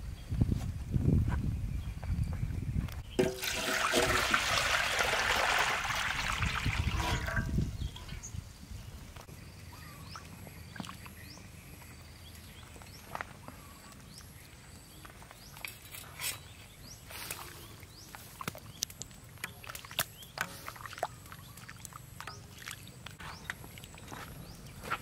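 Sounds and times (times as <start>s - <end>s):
water bubbling and sloshing: 3.2s - 8.2s, 19.4s - 24.2s.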